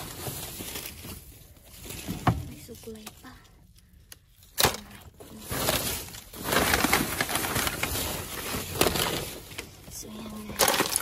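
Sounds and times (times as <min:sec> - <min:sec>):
small bottles rattling: 0:04.6 - 0:11.0.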